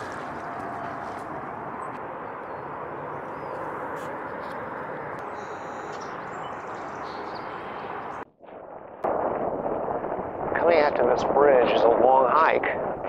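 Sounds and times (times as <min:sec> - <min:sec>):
marsh background noise: 0:00.0 - 0:08.3
faint high bird calls: 0:05.2 - 0:07.8.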